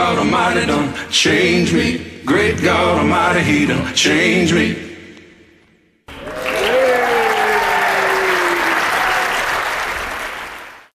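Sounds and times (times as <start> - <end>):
audience clapping: 6.1 - 11.0
crowd cheering: 6.1 - 11.0.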